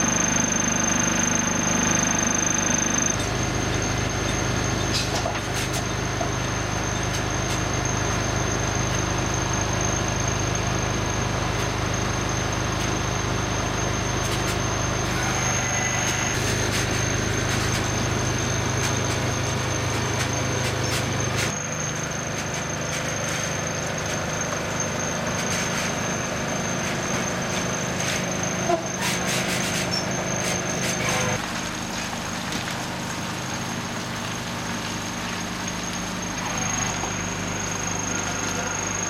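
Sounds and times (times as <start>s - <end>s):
truck diesel engine idling: 0.0s - 39.0s.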